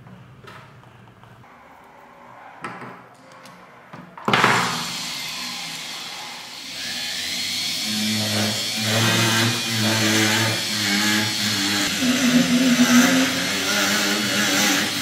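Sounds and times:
rotary tool motor: 4.8 - 15.0.

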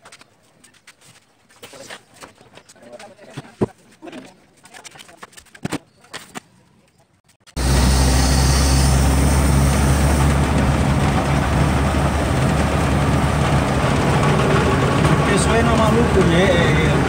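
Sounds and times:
road noise rushing: 7.5 - 17.0
truck engine drone: 7.5 - 17.0.

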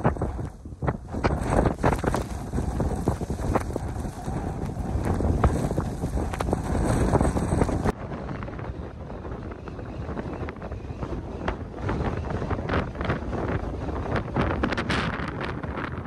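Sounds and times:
blizzard wind buffeting microphone: 0.0 - 16.0.

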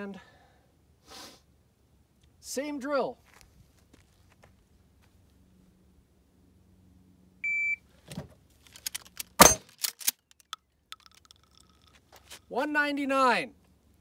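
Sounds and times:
metallic clacks of gun handling: 8.1 - 12.5
shotgun blast: 9.4 - 9.7.

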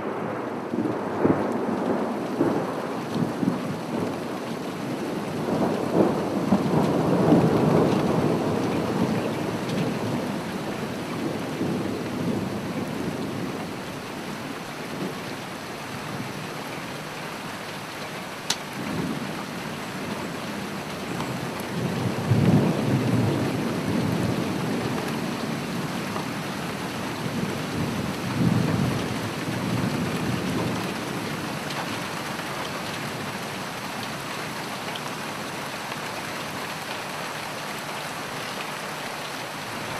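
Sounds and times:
rolling thunder: 0.0 - 4.3, 4.9 - 13.8, 21.4 - 26.0
steady rain: 0.0 - 39.9.

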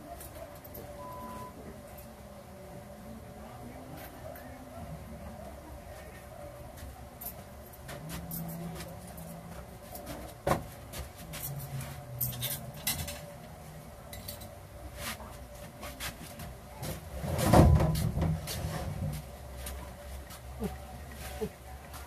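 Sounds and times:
low steady hum: 0.0 - 22.0
knocks and clinks of objects: 7.2 - 13.3, 14.1 - 14.6.

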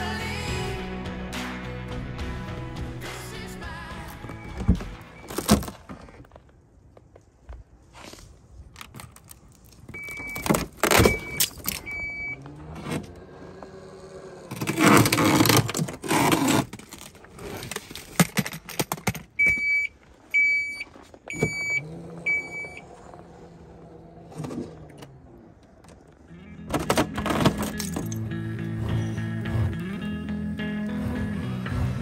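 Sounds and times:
high warning beeps: 10.0 - 12.4, 19.4 - 22.8.

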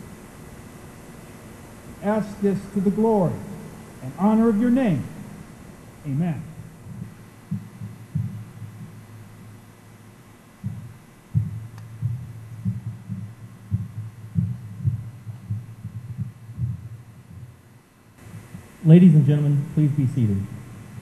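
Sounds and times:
low thumps through microphone: 4.9 - 18.8.

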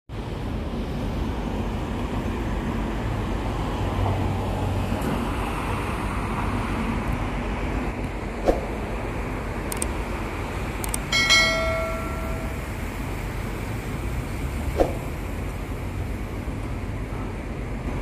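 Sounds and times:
city traffic noise: 0.1 - 18.0
sharp click: 9.7 - 10.0, 10.8 - 12.6.

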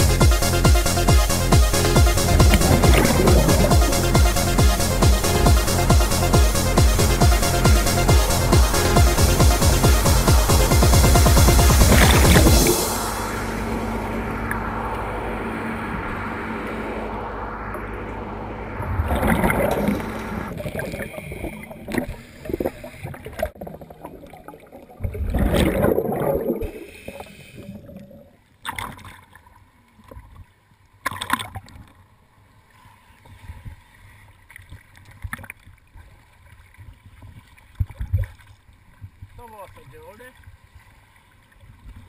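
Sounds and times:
underwater noise: 1.7 - 30.3
regulator bubbles underwater: 2.0 - 6.1, 10.5 - 29.4.

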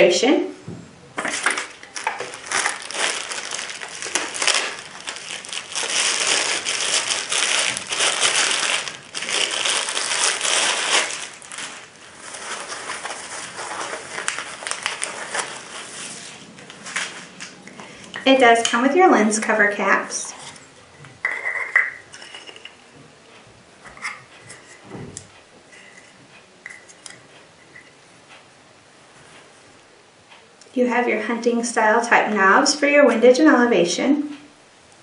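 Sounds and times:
plastic bag crinkling: 1.2 - 18.6.

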